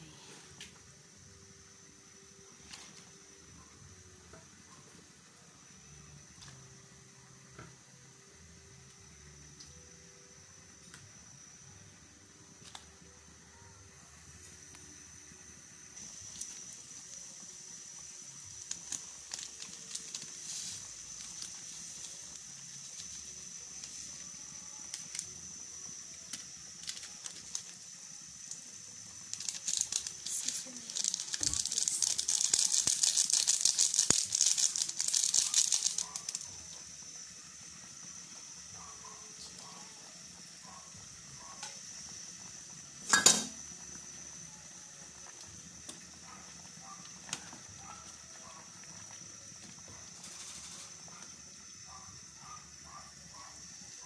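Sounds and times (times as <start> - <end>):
faint hiss: 0.0 - 54.0
plastic sachet crinkling: 18.6 - 23.2, 26.8 - 27.8, 29.2 - 36.6.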